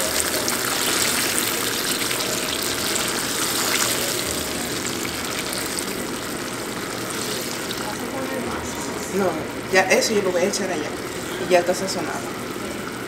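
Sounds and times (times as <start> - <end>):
sauce simmering and sizzling in pan: 0.0 - 8.3.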